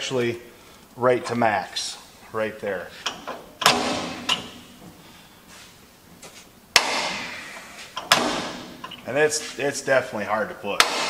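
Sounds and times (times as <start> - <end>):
metallic clutch lever clunks: 3.0 - 4.7, 8.0 - 9.0, 10.8 - 11.0.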